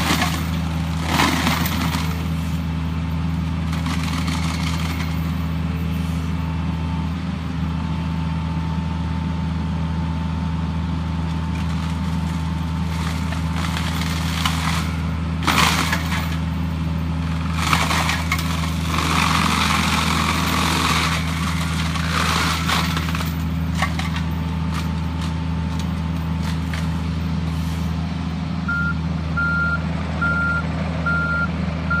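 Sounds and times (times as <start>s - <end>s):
mulcher grinding through brush: 0.0s - 6.4s, 11.0s - 28.1s
excavator diesel engine running: 0.0s - 32.0s
warning alarm beeps: 28.7s - 32.0s.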